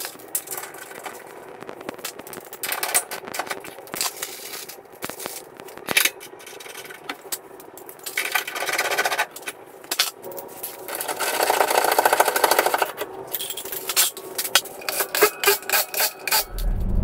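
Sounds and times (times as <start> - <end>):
metal tools clinking: 13.3 - 14.2.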